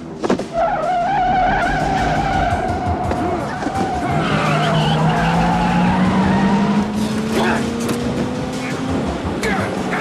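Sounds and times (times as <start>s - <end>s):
tyres squealing: 0.5s - 6.7s
car engine revving: 0.6s - 10.0s.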